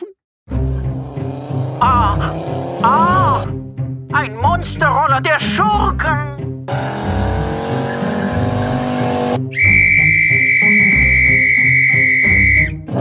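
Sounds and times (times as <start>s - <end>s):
background music: 0.0s - 13.0s
high-pitched whistle blast: 9.5s - 12.8s.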